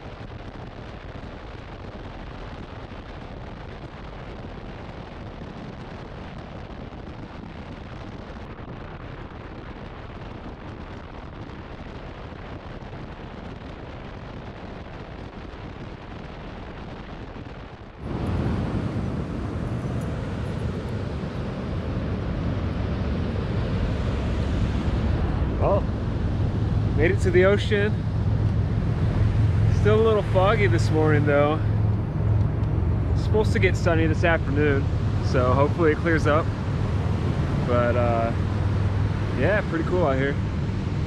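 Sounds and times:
wind on microphone: 0.0s - 41.0s
wind rush and road noise: 0.0s - 41.0s
ocean surf breaking: 18.0s - 41.0s.

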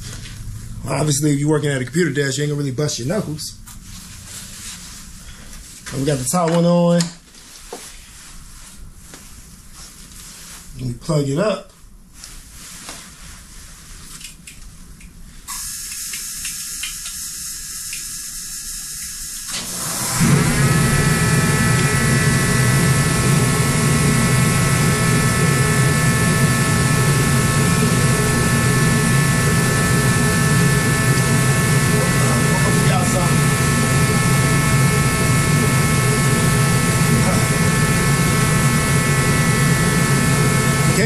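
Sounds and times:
motor running with loud hiss: 15.5s - 41.0s.

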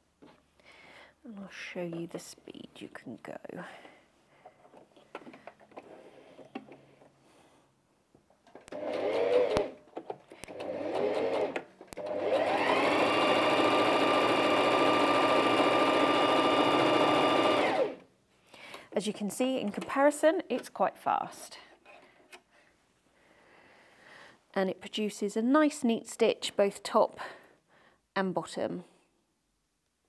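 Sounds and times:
sewing machine stitching: 8.7s - 9.8s, 10.4s - 18.0s.

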